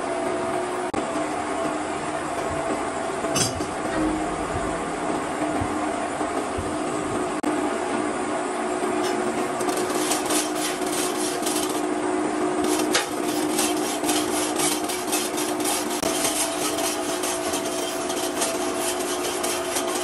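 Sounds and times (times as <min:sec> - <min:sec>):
steady machine hum: 0:00.0 - 0:20.0
hand tool rasping on metal: 0:09.7 - 0:11.8, 0:12.6 - 0:20.0.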